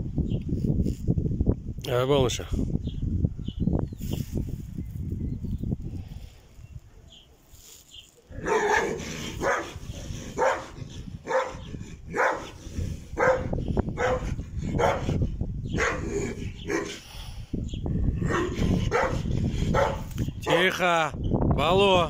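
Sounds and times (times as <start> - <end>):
large dog barking: 8.3 - 17.0, 18.2 - 20.6.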